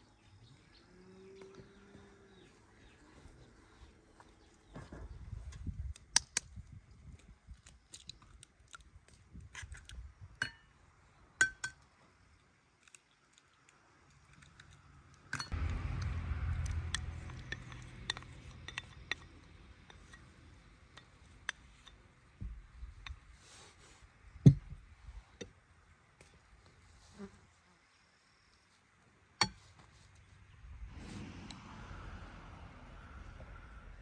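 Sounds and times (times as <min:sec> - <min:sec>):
low rumbling noise: 0:15.4 - 0:21.0, 0:30.6 - 0:34.0.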